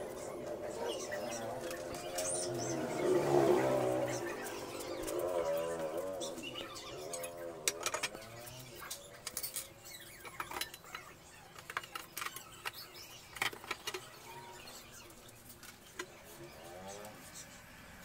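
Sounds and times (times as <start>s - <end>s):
metal parts clinking on wooden table: 9.2s - 11.0s.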